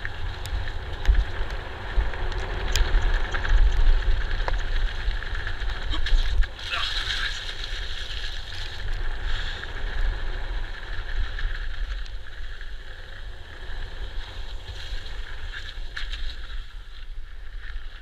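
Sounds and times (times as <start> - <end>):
bike frame rattling: 0.0 - 9.8
bike tyres rumbling on dirt: 0.0 - 18.0
wind rushing over microphone: 0.0 - 18.0.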